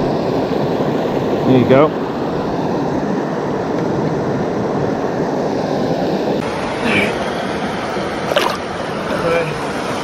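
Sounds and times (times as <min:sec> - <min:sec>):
river water over rocks: 0:07.8 - 0:09.3.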